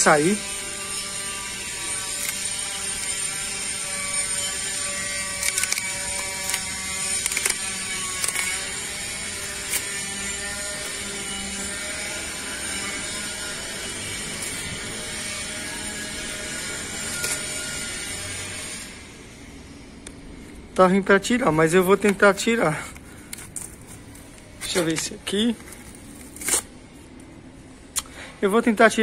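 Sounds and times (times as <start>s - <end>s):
stencil peeling rasping clicks: 0.7s - 12.0s, 12.6s - 18.7s.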